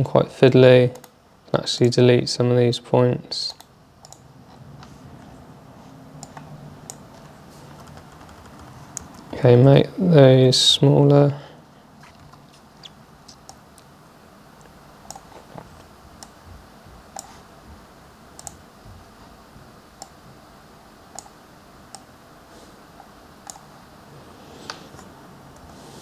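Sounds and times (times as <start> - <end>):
laptop keys and mouse clicks: 6.2 - 9.4, 17.1 - 17.3, 18.4 - 18.6.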